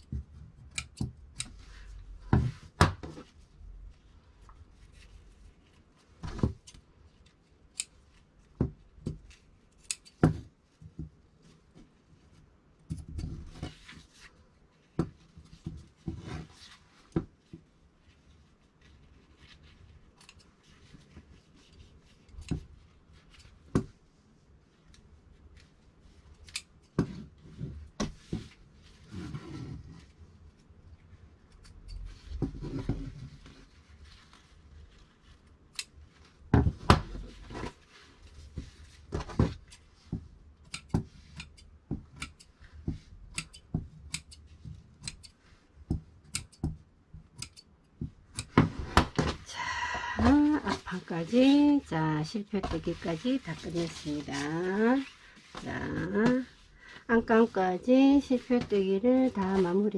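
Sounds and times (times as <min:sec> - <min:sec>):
shears snipping thread: 0:00.6 - 0:01.6, 0:07.7 - 0:08.0, 0:09.7 - 0:10.2, 0:20.1 - 0:20.6, 0:35.7 - 0:36.0, 0:40.6 - 0:42.6, 0:43.3 - 0:45.4, 0:46.2 - 0:47.7
fabric rustling: 0:13.4 - 0:40.5, 0:48.1 - 0:59.9.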